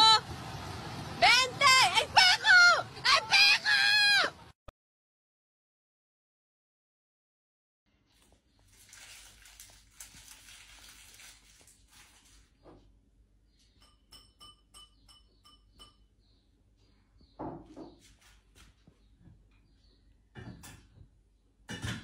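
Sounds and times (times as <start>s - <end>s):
ceramic bowl and utensils ringing: 13.7s - 16.1s
dishes clinking: 13.7s - 16.1s, 20.3s - 21.0s, 21.7s - 22.0s.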